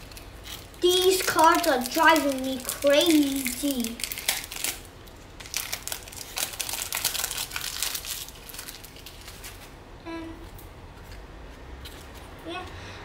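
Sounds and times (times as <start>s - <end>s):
foil wrapper crinkling and tearing: 0.0s - 9.8s.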